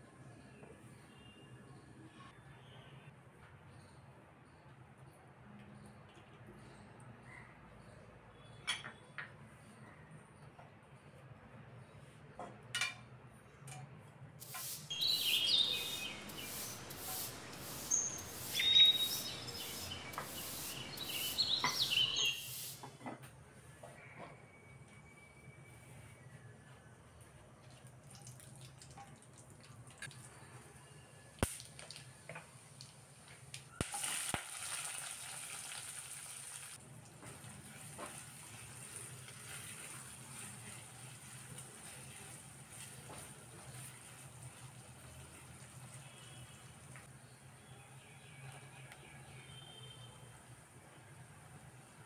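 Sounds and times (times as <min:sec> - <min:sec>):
oil sizzling and crackling: 0:14.4 - 0:22.9, 0:31.4 - 0:47.1
high short chirping tones: 0:14.8 - 0:22.7.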